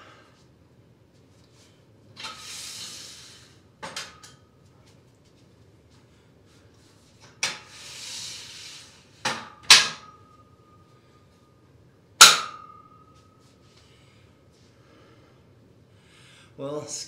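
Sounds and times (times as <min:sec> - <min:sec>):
metal clanks on steel rack: 0:09.3 - 0:10.3, 0:12.2 - 0:13.1.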